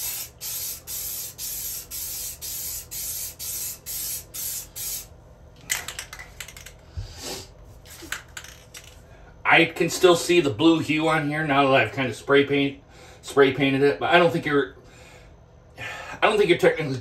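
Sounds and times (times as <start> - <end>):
spray paint can hissing: 0.0 - 5.1.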